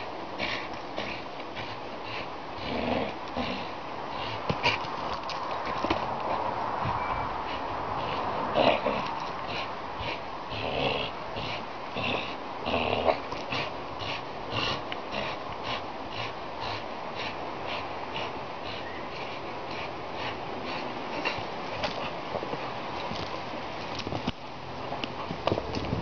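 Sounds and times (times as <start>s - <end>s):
dog snorting through nose: 0.4s - 5.0s.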